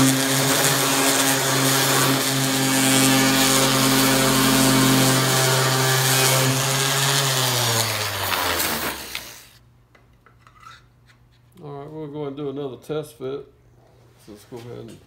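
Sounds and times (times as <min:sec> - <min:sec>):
orbit sander sanding wood: 0:00.0 - 0:09.6
sander winding down: 0:00.0 - 0:09.6.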